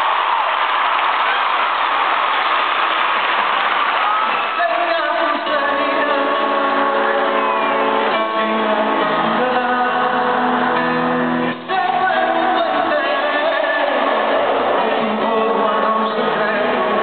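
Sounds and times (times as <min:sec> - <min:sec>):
man singing pop ballad: 0:04.3 - 0:17.0.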